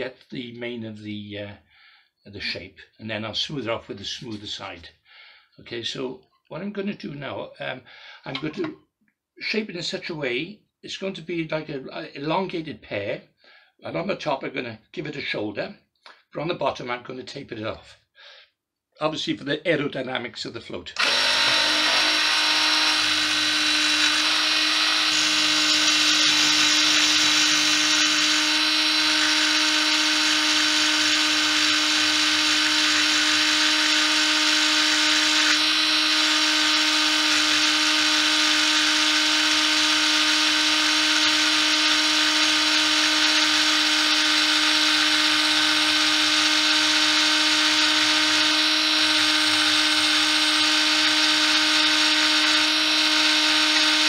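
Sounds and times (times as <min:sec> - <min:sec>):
lathe motor whining: 0:21.0 - 0:54.0.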